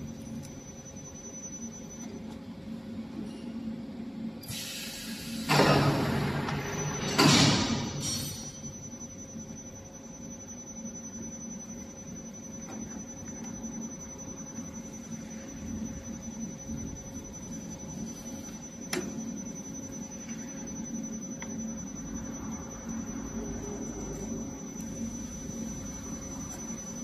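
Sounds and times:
machine hum with high tone: 0.0s - 27.0s.

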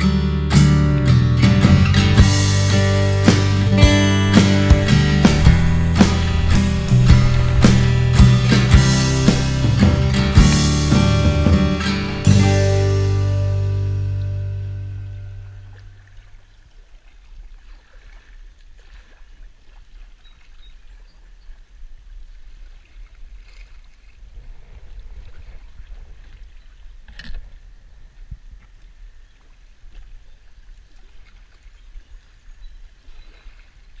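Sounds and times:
wind rumble on microphone: 1.2s - 12.4s, 20.6s - 33.6s
paddle strokes in water: 1.4s - 12.3s, 14.8s - 34.0s
short sharp hit: 1.6s - 14.2s.

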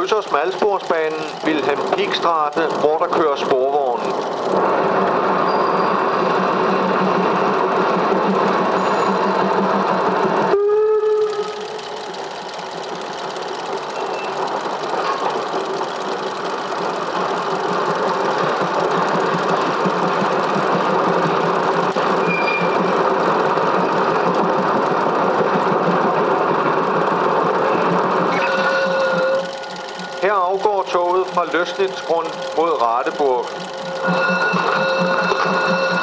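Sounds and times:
train rolling clatter: 0.0s - 36.0s
steam train whistle: 10.5s - 11.8s, 28.3s - 29.6s, 34.0s - 36.0s.

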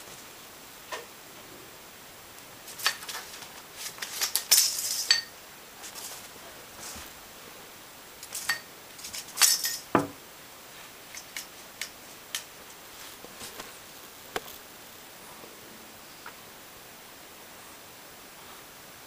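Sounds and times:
cat playing with small objects: 2.6s - 7.1s, 8.2s - 9.9s.

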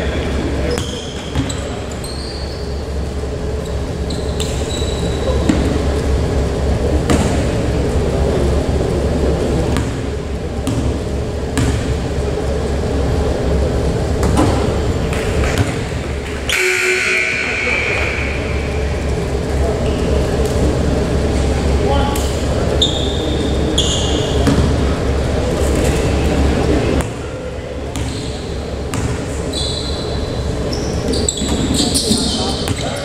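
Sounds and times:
steady hall hum: 0.0s - 33.0s
shoe squeaks: 0.6s - 2.9s, 3.6s - 5.5s, 22.8s - 24.5s, 28.0s - 28.5s, 29.4s - 33.0s
basketball bouncing on court: 0.7s - 1.8s, 4.1s - 5.8s, 7.0s - 7.6s, 9.7s - 12.1s, 14.2s - 17.4s, 23.9s - 24.9s, 27.9s - 29.9s
scattered voices: 12.1s - 27.9s.

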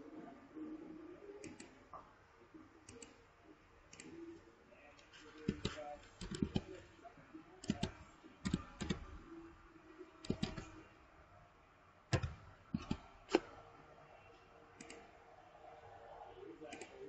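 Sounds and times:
mouse clicks: 1.4s - 1.8s, 7.6s - 9.1s, 10.2s - 10.8s, 12.1s - 13.6s, 14.8s - 15.1s
keyboard keystrokes: 5.4s - 6.8s, 7.6s - 9.1s, 10.2s - 10.8s, 12.1s - 13.5s.

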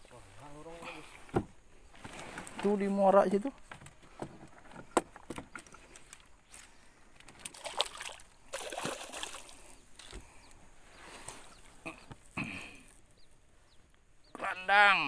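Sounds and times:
water splashing and trickling: 5.6s - 10.2s.

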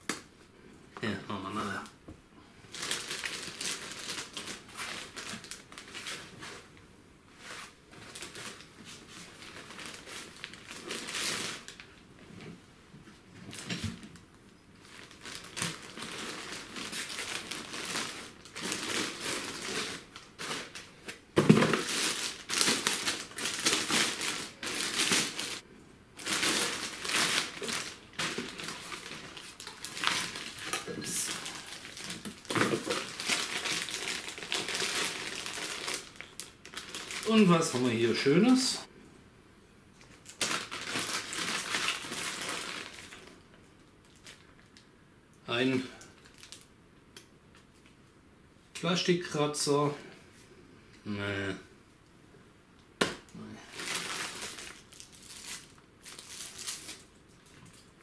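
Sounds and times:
plastic wrap crinkling: 2.7s - 6.7s, 7.4s - 12.1s, 13.4s - 25.6s, 26.2s - 38.6s, 40.0s - 44.9s, 46.0s - 46.7s, 53.6s - 58.0s.

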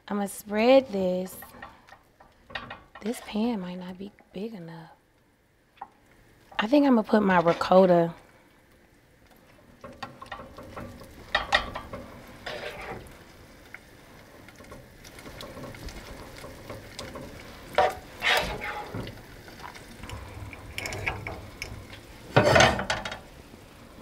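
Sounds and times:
spoon scraping baking pan: 7.2s - 8.0s, 10.4s - 13.1s, 17.7s - 19.1s.

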